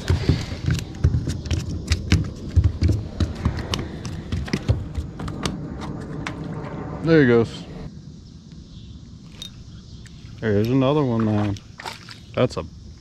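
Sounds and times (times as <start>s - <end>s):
low rumble: 1.8s - 9.7s.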